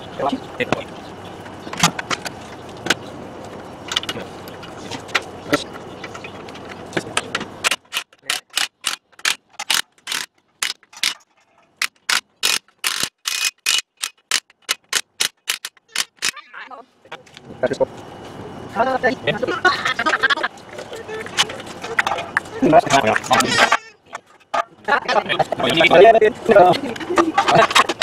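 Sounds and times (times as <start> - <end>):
impact wrench bursts: 11.8 - 16.4.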